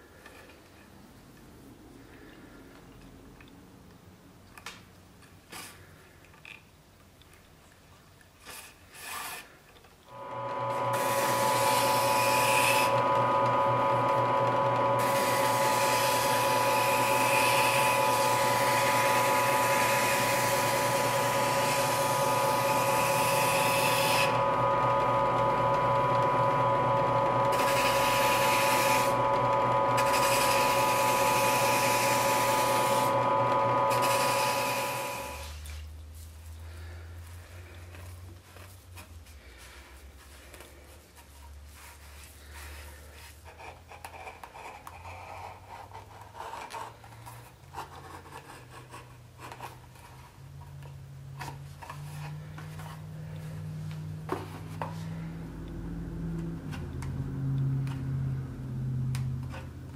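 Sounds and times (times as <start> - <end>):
drill press motor humming: 10.1 - 35.5.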